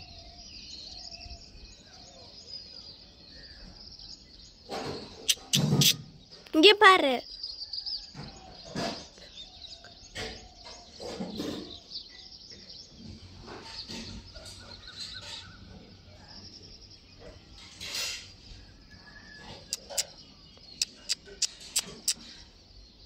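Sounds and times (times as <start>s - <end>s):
birds chirping: 0.0s - 23.0s
sharp clicks: 19.7s - 22.2s.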